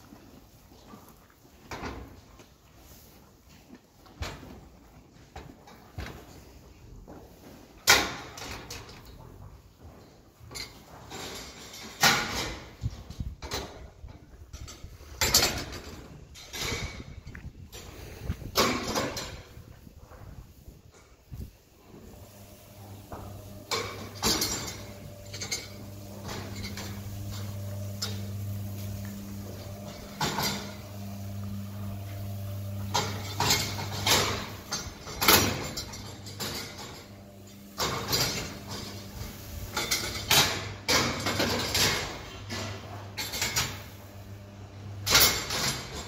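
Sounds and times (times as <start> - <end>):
steel feed barriers clanking: 10.4 - 19.9, 20.8 - 46.0
low electric hum: 10.5 - 46.0.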